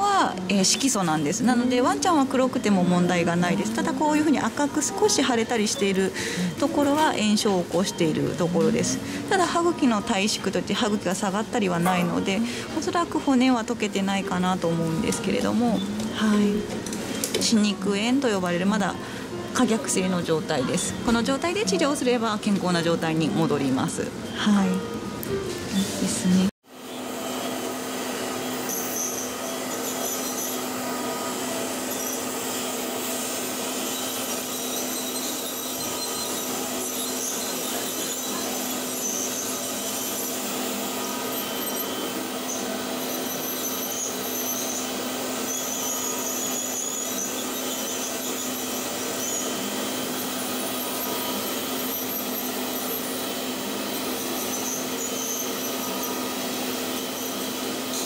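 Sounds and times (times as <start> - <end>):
high-pitched scaler whines: 0.0 - 25.0, 25.7 - 58.0
dental scaler hiss and hum: 26.0 - 58.0.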